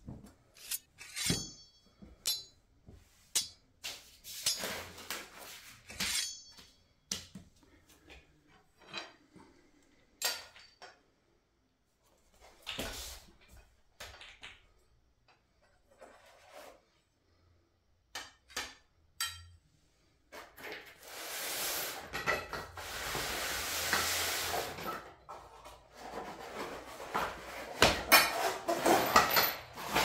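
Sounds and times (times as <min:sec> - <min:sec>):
metallic ring: 0:00.6 - 0:02.6, 0:06.0 - 0:06.8
steel tubes clinking and knocking: 0:00.6 - 0:02.6, 0:03.3 - 0:03.7, 0:06.0 - 0:06.8, 0:18.2 - 0:19.6.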